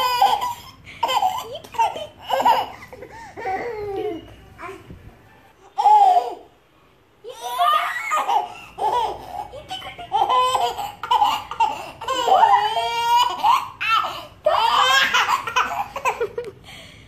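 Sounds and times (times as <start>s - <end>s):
baby laughing: 0.0s - 4.2s, 7.3s - 16.5s.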